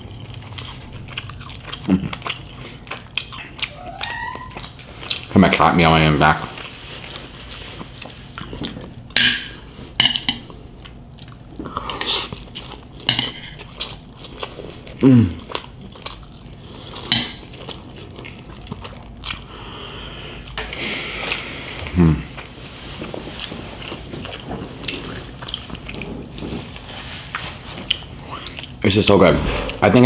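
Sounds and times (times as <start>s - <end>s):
crunchy chewing: 0.0s - 3.8s, 10.8s - 19.7s.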